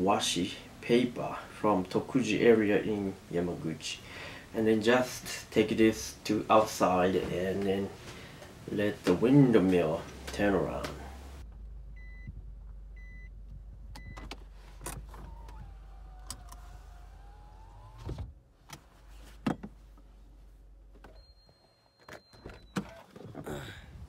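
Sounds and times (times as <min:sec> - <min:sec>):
low engine hum: 0:10.1 - 0:21.0
electric window motor whining: 0:14.3 - 0:18.4.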